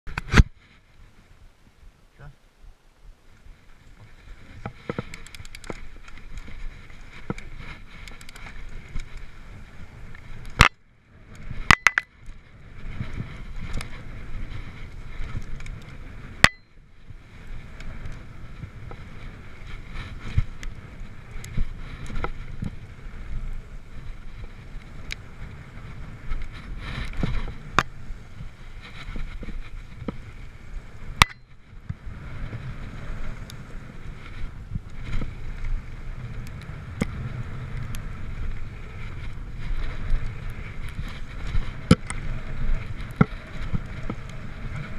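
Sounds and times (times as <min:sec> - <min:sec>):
bike tyres rolling on gravel: 0:00.1 - 0:02.1, 0:02.7 - 0:44.9
bike rattling over rough ground: 0:03.2 - 0:44.9
sharp clacks: 0:11.7 - 0:12.1.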